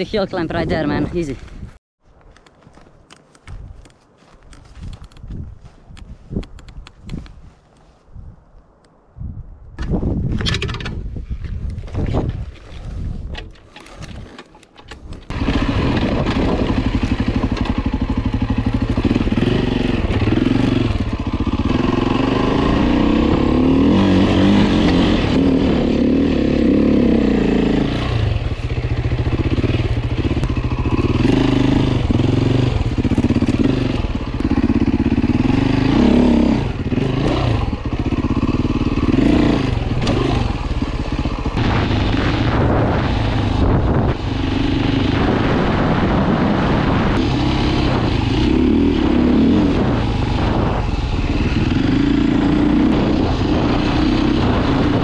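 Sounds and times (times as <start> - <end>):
dirt bike engine revving: 15.3 - 55.0.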